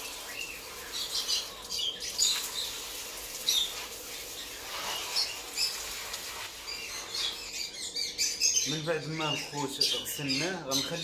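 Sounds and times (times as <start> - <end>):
lovebirds chirping: 0.0 - 11.0.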